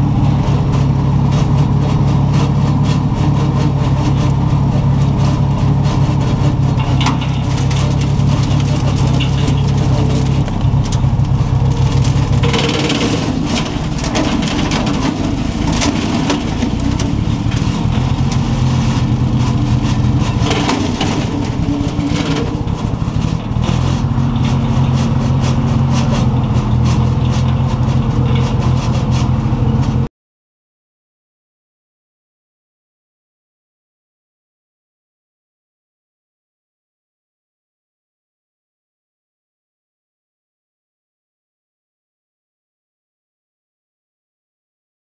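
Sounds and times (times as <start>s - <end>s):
skid steer engine under load: 0.0s - 30.1s
branches cracking and snapping: 7.1s - 24.2s.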